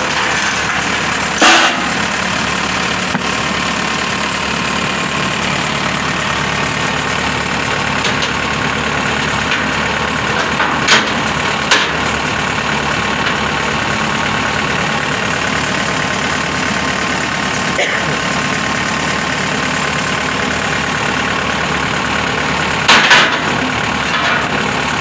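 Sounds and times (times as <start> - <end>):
metal ramps clanking: 0.0 - 3.3, 7.6 - 14.2, 22.8 - 24.7
engine idling: 0.0 - 25.0.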